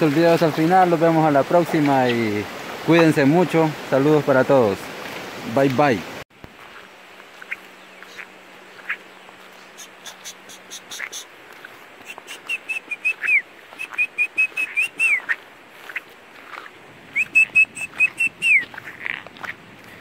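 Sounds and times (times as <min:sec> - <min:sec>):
birds chirping: 0:06.6 - 0:20.0
high whistled bird notes: 0:12.0 - 0:15.4, 0:17.1 - 0:18.8.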